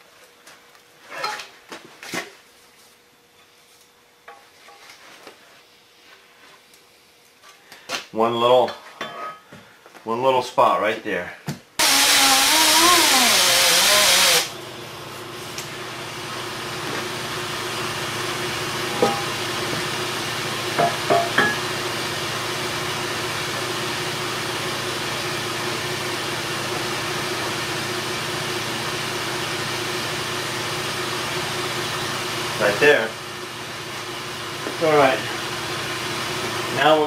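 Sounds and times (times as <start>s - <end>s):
pneumatic polishing tool running: 11.8s - 14.6s
steady machine hum: 11.8s - 37.0s.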